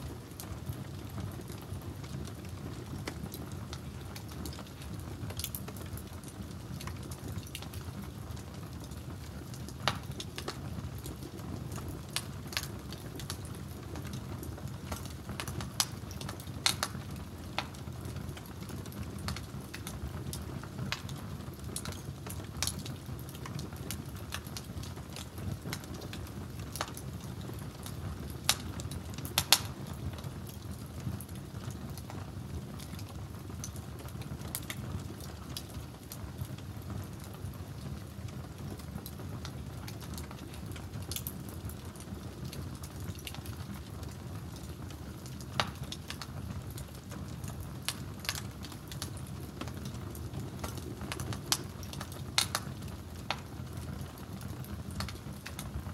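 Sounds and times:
pot boiling and bubbling: 0.0 - 55.9
wood fire crackling and popping: 0.0 - 55.9.

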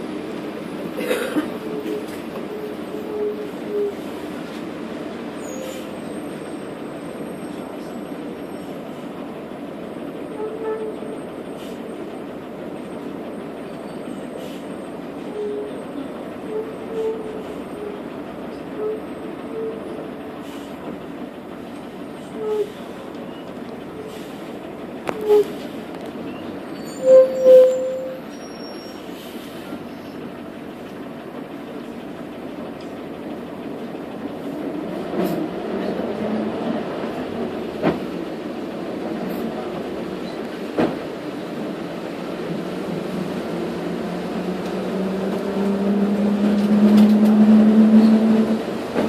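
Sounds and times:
bus interior rumble and rattle: 0.0 - 49.0
short squeaks: 25.1 - 25.7, 26.3 - 29.1.

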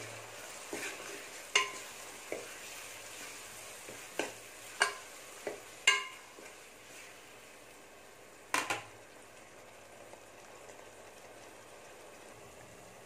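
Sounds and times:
faint sizzle: 0.0 - 13.0
spoon clinking against pot: 1.5 - 1.8, 5.8 - 6.2.

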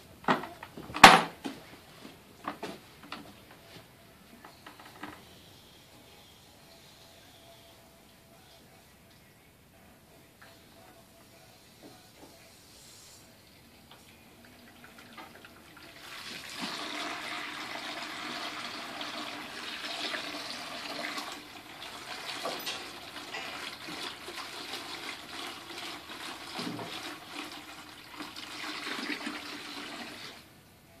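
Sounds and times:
water splashing in a plastic bucket: 14.8 - 21.4.

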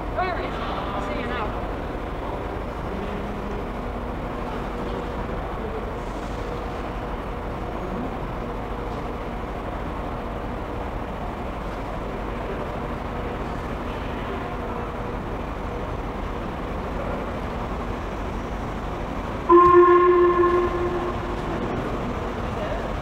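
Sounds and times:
station rumble: 0.0 - 23.0
steam locomotive whistle: 19.5 - 21.8.

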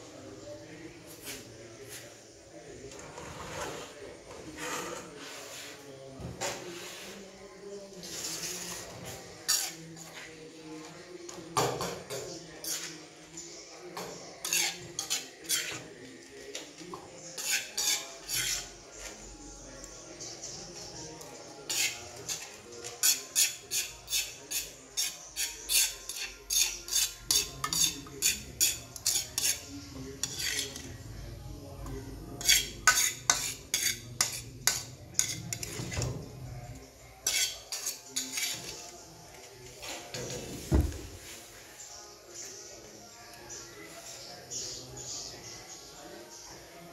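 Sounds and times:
metal ladle scraping a wok: 9.5 - 9.8, 14.4 - 15.8, 17.4 - 18.7, 21.7 - 22.4, 23.0 - 29.6, 30.2 - 30.8, 32.4 - 35.8.

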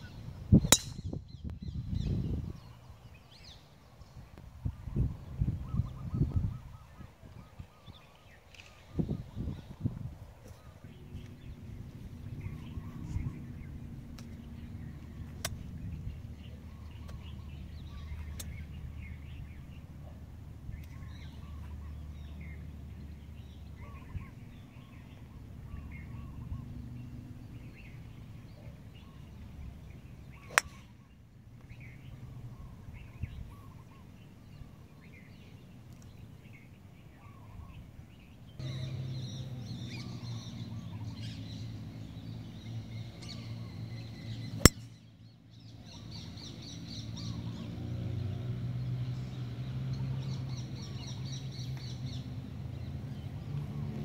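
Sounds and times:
golf club striking ball: 0.6 - 1.2, 30.4 - 30.8
birds chirping: 10.5 - 47.7.

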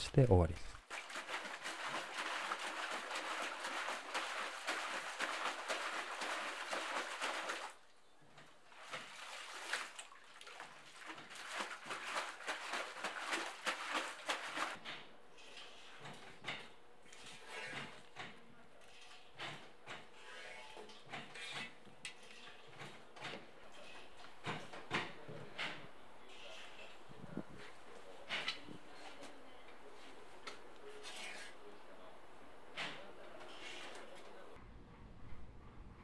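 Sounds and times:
yarn splashing in water basin: 0.8 - 14.8
water dripping: 8.8 - 14.8.

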